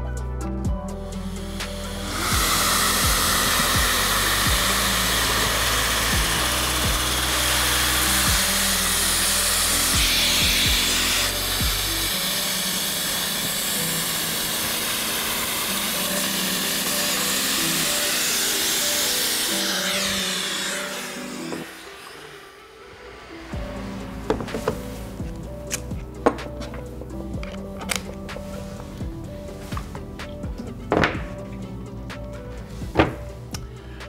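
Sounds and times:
background music: 0.0s - 34.0s
dust extractor hissing: 1.0s - 27.1s
cordless drill boring: 1.2s - 24.8s.

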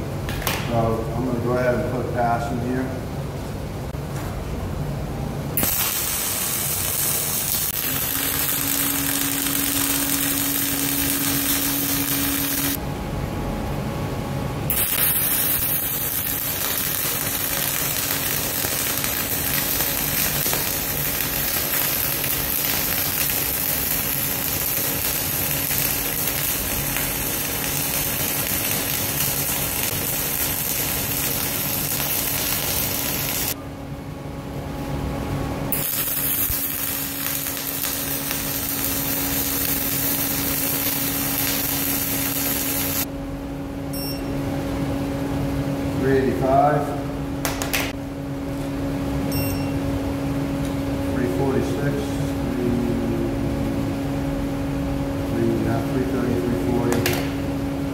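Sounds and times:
steady hum: 0.0s - 57.9s
welding arc crackling: 5.5s - 12.8s, 14.7s - 33.6s, 35.7s - 43.1s.

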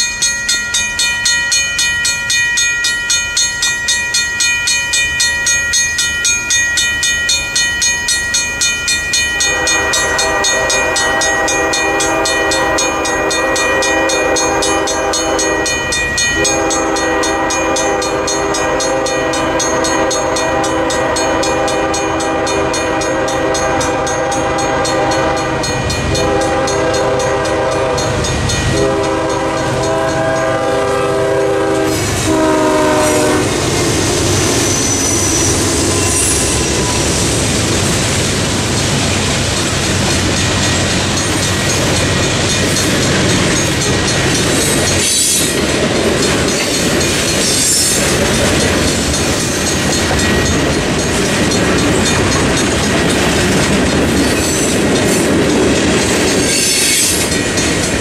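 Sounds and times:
crossing bell ringing: 0.0s - 58.0s
locomotive air horn blasts: 9.4s - 15.8s, 16.4s - 33.6s.

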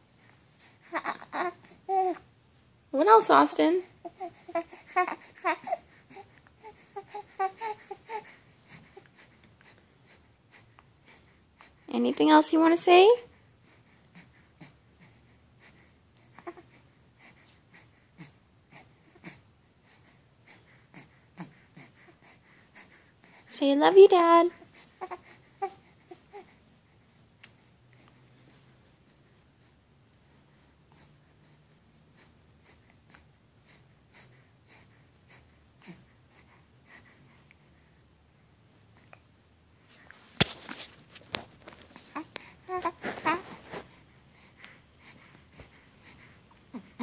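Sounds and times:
baby cooing: 0.8s - 2.2s, 4.0s - 8.3s, 42.0s - 43.6s
baby breathing: 3.8s - 11.9s, 13.2s - 23.6s, 39.9s - 47.0s
baby rustling against fabric: 39.8s - 47.0s
baby snuffles and grunts: 41.8s - 44.1s.

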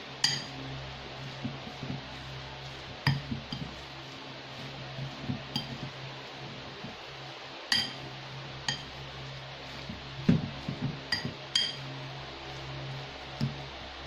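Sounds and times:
steady low hum: 0.0s - 14.0s
fork clinking against bowl: 0.2s - 0.5s, 7.7s - 8.0s, 11.1s - 11.8s
fork mashing food in bowl: 0.2s - 6.0s, 7.7s - 8.0s, 8.6s - 13.7s.

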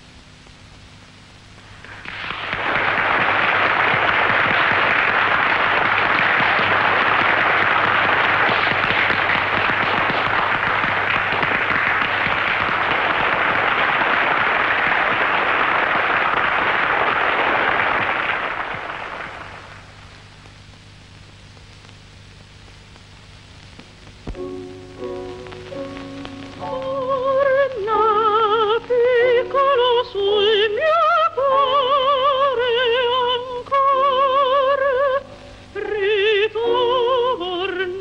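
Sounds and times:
audience applauding: 1.8s - 20.1s, 25.0s - 28.6s.

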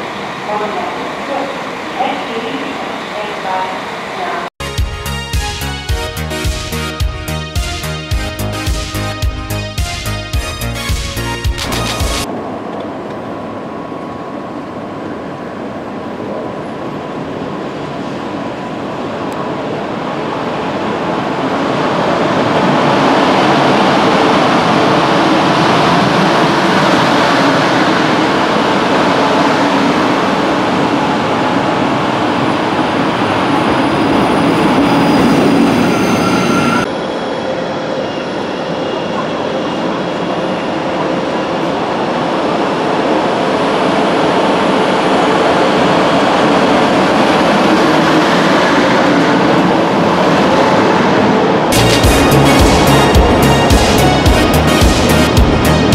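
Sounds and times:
electric train traction and wheel noise: 9.9s - 55.9s.

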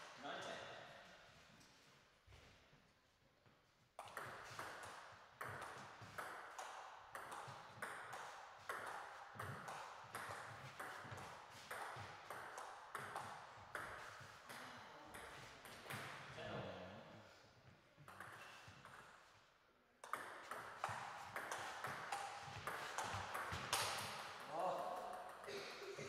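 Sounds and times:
ball bouncing on table: 4.0s - 16.2s, 20.0s - 25.5s.

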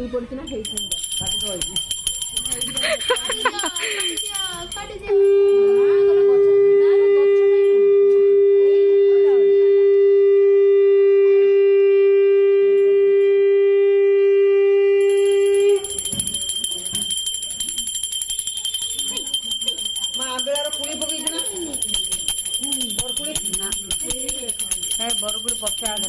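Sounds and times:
brass hand bell ringing: 0.5s - 5.9s, 15.0s - 26.0s
conch shell blown: 5.1s - 16.1s.

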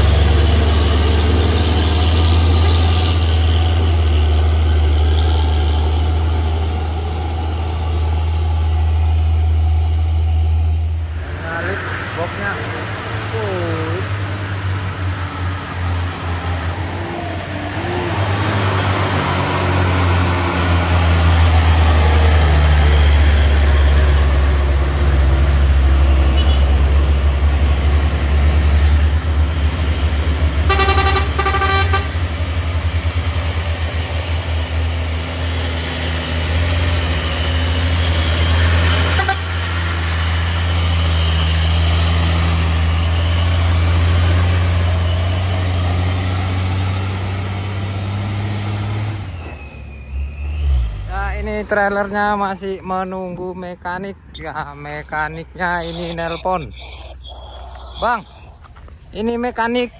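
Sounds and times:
diesel truck engines droning: 0.0s - 59.9s
vehicle horn toots: 26.3s - 26.8s, 30.6s - 32.2s, 39.0s - 39.6s.

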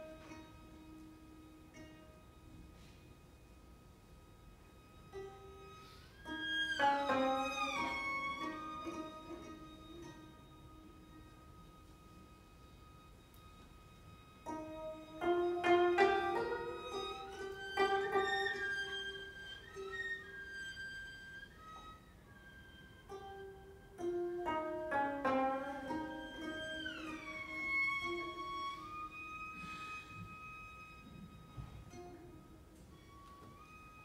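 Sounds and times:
plucked zither notes: 0.0s - 3.0s, 4.9s - 11.8s, 14.4s - 30.1s
cello sustained tones: 0.0s - 34.0s.

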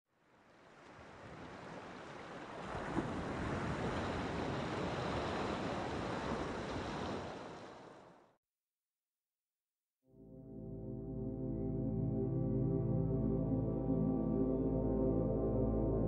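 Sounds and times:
sea surf washing: 0.6s - 8.1s.

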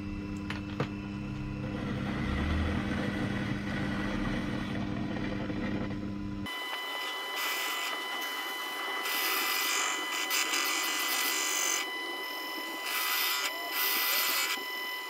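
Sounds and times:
lathe whining: 0.0s - 15.0s
high hiss of cutting tool: 8.9s - 11.9s, 12.8s - 14.6s.

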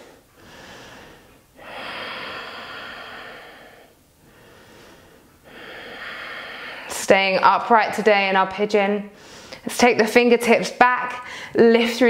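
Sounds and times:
woman breathing: 0.0s - 7.1s, 9.1s - 9.7s, 11.2s - 11.6s.

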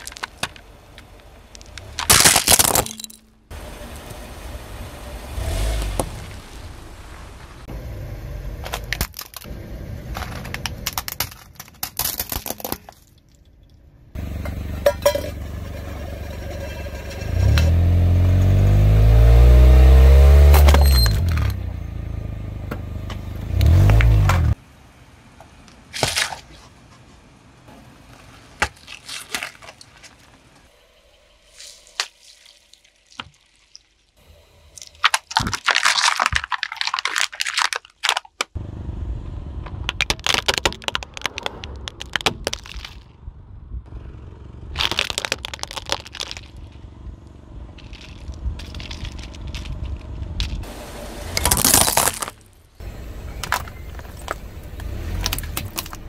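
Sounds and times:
objects crunching under tyre: 0.0s - 4.2s, 8.6s - 21.7s, 23.0s - 24.6s, 25.7s - 27.2s, 28.0s - 30.7s, 31.5s - 38.6s, 39.6s - 43.3s, 44.7s - 47.1s, 47.7s - 50.7s, 51.3s - 56.0s
car engine running: 3.0s - 11.2s, 14.0s - 25.9s, 38.6s - 56.0s.

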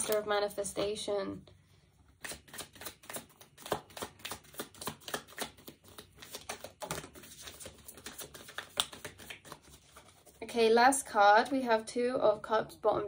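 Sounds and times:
cards being shuffled: 2.2s - 10.4s.

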